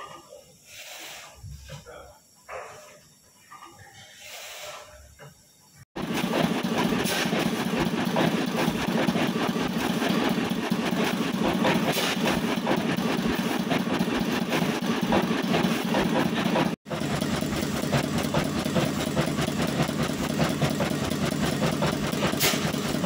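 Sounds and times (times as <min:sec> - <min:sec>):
stationary engines running: 0:06.0 - 0:23.0.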